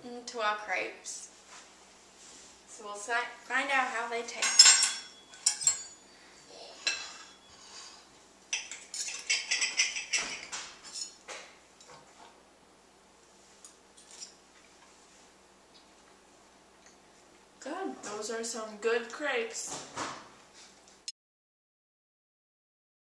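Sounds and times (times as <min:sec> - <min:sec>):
cutlery scraping and clinking on plates: 0:04.4 - 0:06.1, 0:06.8 - 0:08.0, 0:08.6 - 0:11.2, 0:13.6 - 0:14.4.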